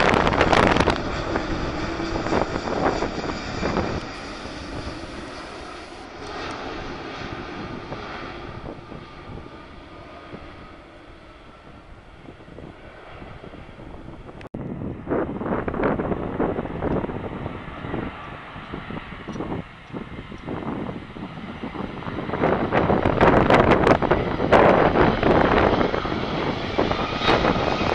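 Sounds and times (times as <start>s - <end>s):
jet airliner engines: 0.0s - 27.9s.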